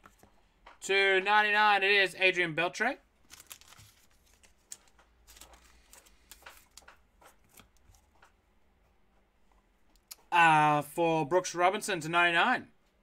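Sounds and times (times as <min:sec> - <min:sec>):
trading cards clicking and rustling: 0:03.2 - 0:08.4.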